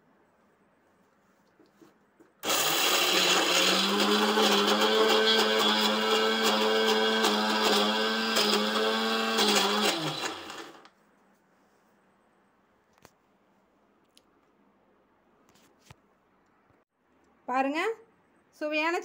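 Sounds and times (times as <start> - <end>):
mixer grinder motor running: 2.4 - 10.9.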